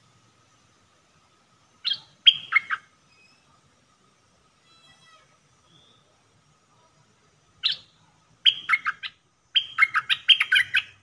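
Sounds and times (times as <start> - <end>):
bulbul singing: 1.7 - 3.5, 5.6 - 6.2, 7.6 - 11.0.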